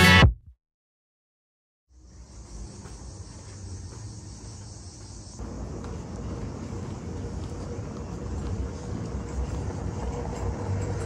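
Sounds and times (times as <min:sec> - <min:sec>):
insects chirring: 0:01.9 - 0:07.4.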